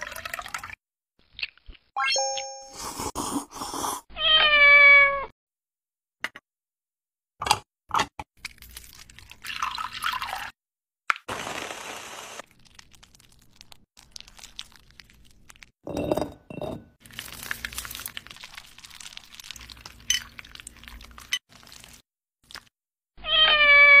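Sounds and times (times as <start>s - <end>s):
glassware clinking and knocking: 15.9s - 17.0s.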